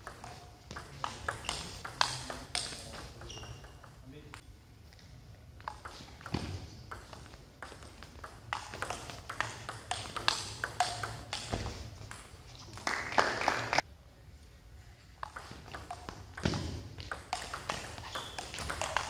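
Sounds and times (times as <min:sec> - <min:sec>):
table tennis ball clicking: 0:05.7 - 0:11.5, 0:15.2 - 0:19.0.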